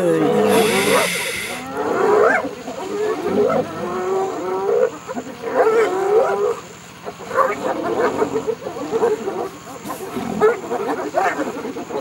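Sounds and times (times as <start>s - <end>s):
hyenas and lions calling: 0.0s - 12.0s
short rising yelps: 0.3s - 1.8s.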